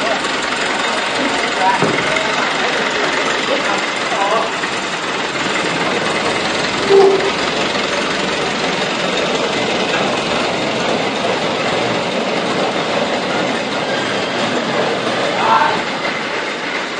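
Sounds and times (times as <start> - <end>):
brief squeal: 6.8 - 7.5.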